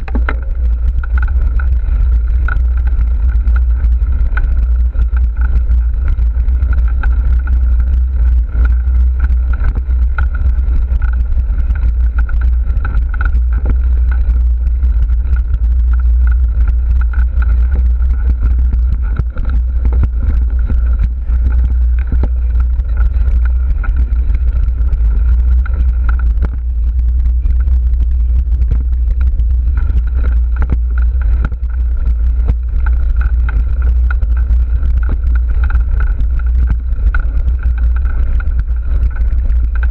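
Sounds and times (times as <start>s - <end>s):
bike rattles and knocks: 0.0s - 39.9s
steady high whine: 0.0s - 39.9s
wind buffeting microphone: 0.0s - 39.9s.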